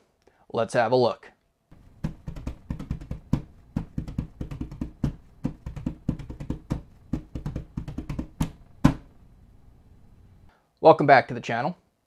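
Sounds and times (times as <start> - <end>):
fast percussion beat: 1.8 - 9.0.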